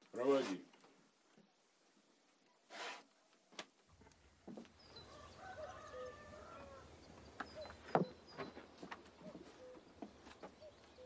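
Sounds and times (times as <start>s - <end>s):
small birds chirping: 3.9s - 11.0s
rooster crowing: 5.1s - 6.9s.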